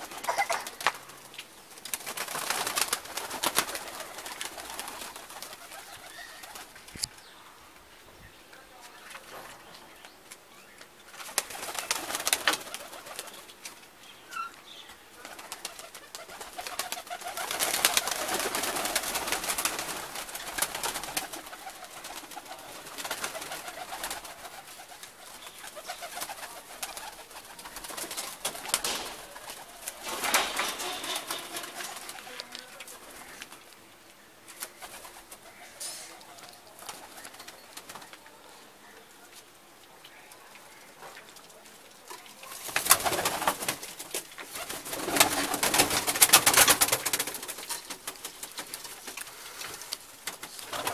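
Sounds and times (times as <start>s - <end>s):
pigeons cooing: 0.0s - 7.1s, 11.1s - 33.7s
wings flapping and rustling: 0.0s - 7.3s, 8.8s - 38.5s, 41.0s - 50.9s.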